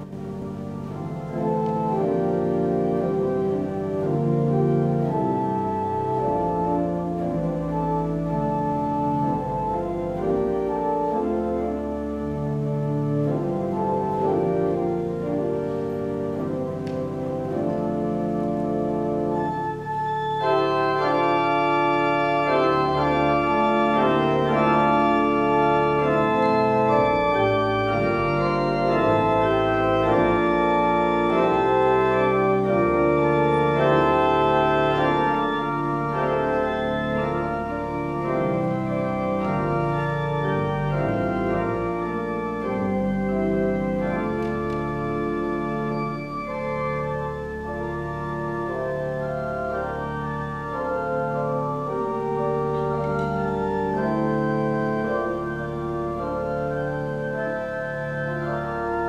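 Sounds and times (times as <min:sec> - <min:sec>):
pipe organ playing sustained chords: 0:00.0 - 0:59.0.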